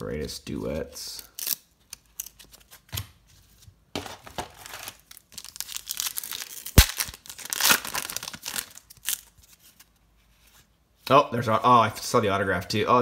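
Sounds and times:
foil wrapper crinkling and tearing: 4.5s - 9.6s.

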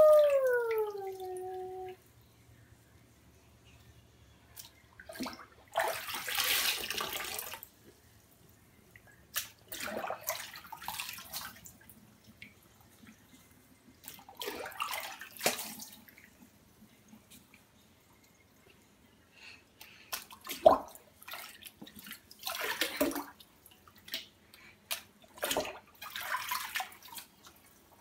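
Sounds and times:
water splashing in a sink: 4.6s - 7.8s, 8.9s - 13.2s, 13.9s - 16.5s, 20.1s - 28.0s.

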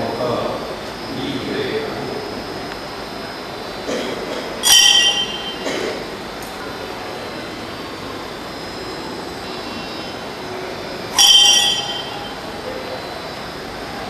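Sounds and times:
church room hum: 0.0s - 14.0s
altar bell ringing: 4.6s - 6.1s, 11.1s - 12.7s.

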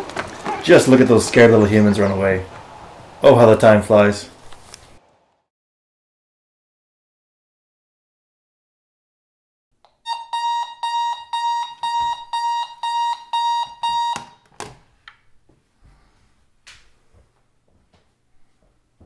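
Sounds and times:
alarm clock beeping: 10.0s - 14.4s
hand slapping alarm clock: 10.1s - 14.4s.

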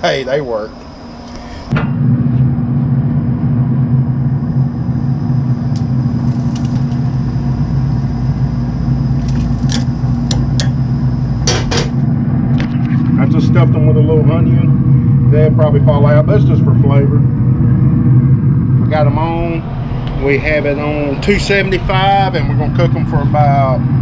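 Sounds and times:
pellet grill humming: 0.0s - 24.0s.

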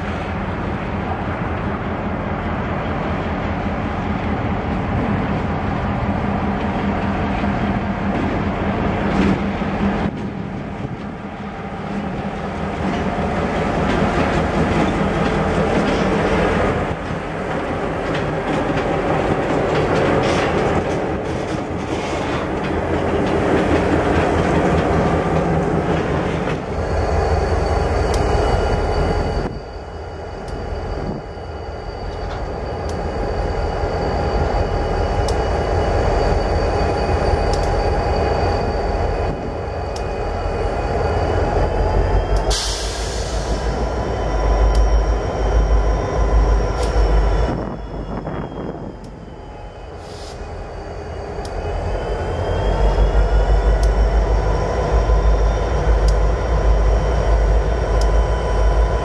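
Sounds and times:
diesel locomotive engine: 0.0s - 59.0s
freight train rolling by: 0.0s - 59.0s
train wheel clatter: 3.4s - 29.6s
faint high squeal: 26.6s - 59.0s.

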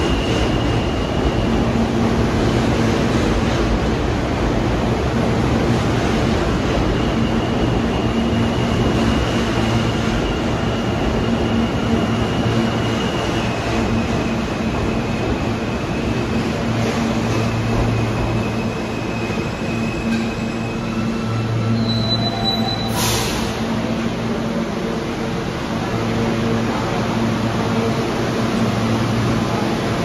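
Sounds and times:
train wheels rumbling on track: 0.0s - 30.0s
brief high squeal: 18.3s - 23.6s.

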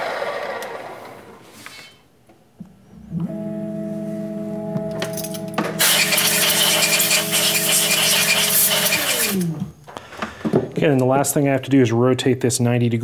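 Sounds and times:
machine motor humming: 3.0s - 9.7s
compressed air hissing: 5.8s - 9.5s.

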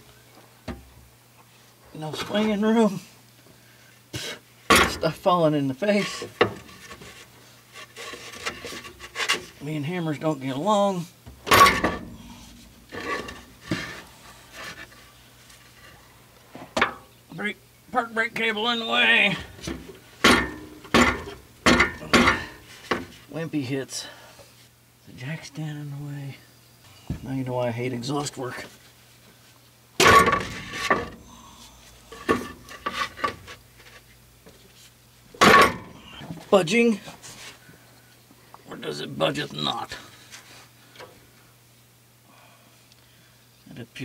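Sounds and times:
hammer clanking on metal pipe: 11.5s - 13.4s, 20.2s - 22.6s, 35.4s - 35.9s
metal scraping: 11.5s - 15.9s, 30.0s - 31.3s.

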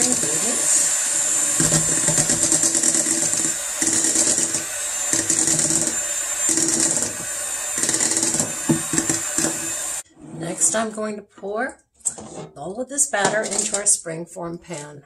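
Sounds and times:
electric hand mixer whirring: 0.0s - 10.0s.

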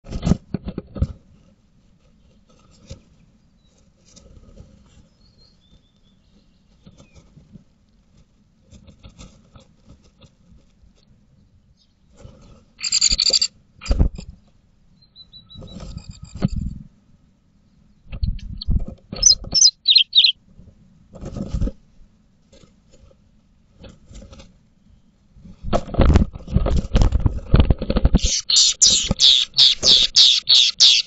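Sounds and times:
faint short bird chirps: 12.8s - 13.5s, 18.6s - 20.4s.

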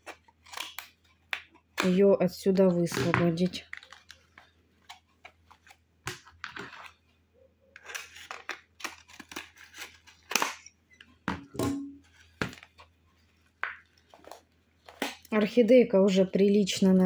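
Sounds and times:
plastic crackling and snapping: 0.0s - 2.0s, 2.8s - 6.9s, 7.8s - 11.1s.

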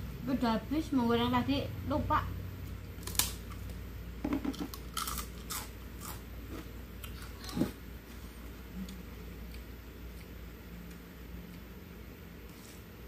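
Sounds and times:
crunchy chewing: 3.0s - 3.8s, 4.5s - 7.8s.

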